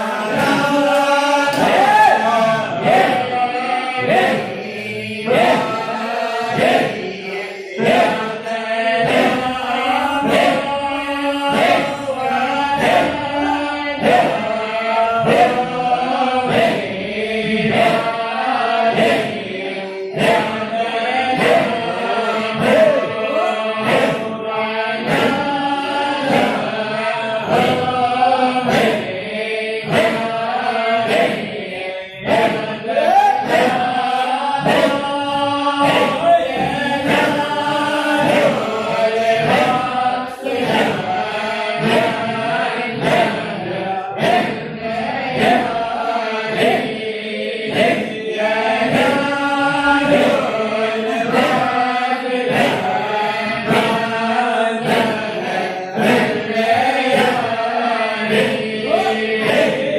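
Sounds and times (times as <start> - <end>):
voices chanting: 0.0 - 59.9
steady percussive beat: 0.1 - 3.4, 20.2 - 25.6, 26.2 - 31.6, 32.3 - 40.0, 45.4 - 54.2, 54.8 - 57.7.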